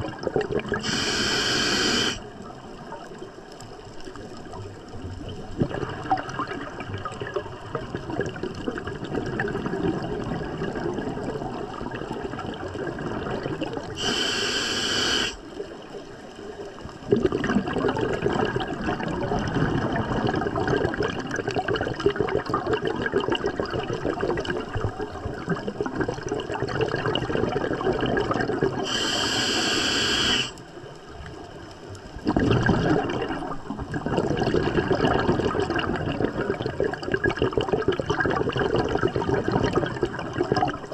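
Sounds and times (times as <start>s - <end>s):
exhaled bubbles underwater: 0.0s - 40.9s
hissing regulator inhale: 0.8s - 2.2s, 14.0s - 15.4s, 28.8s - 30.6s.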